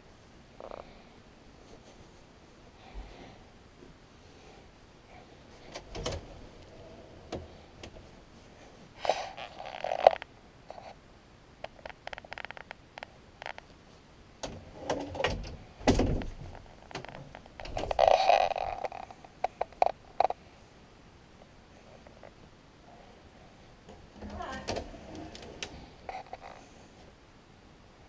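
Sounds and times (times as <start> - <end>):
closet door clicks and knocks: 5.7 - 6.5, 14.4 - 18.0, 23.9 - 25.8
scraping and rustling: 16.2 - 20.4, 24.2 - 27.1.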